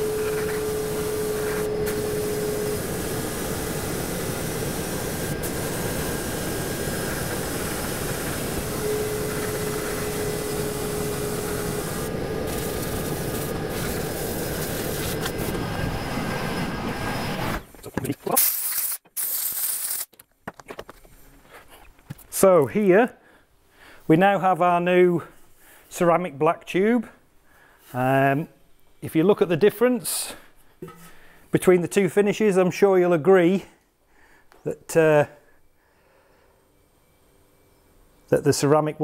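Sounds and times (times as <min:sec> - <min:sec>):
compressed air blasting hiss: 0:00.0 - 0:15.6, 0:18.4 - 0:20.1.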